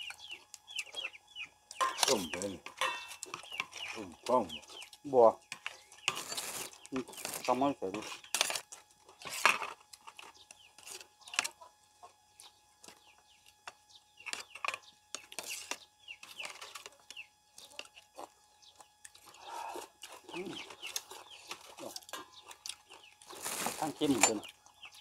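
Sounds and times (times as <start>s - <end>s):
chickens clucking: 0.0s - 8.3s, 10.0s - 25.0s
spoons clinking on plates: 1.7s - 3.8s, 24.0s - 24.6s.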